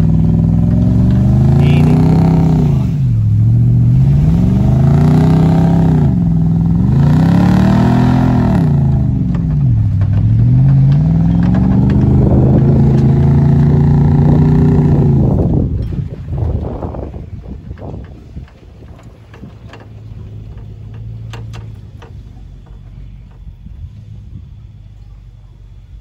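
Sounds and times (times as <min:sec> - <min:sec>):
vehicle engine revving: 0:00.0 - 0:26.0
light rattling: 0:09.2 - 0:25.9.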